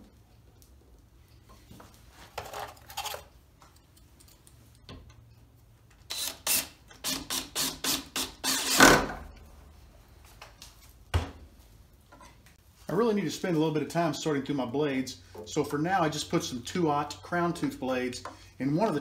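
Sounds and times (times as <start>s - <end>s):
cordless drill bursts into wood: 6.1s - 9.1s.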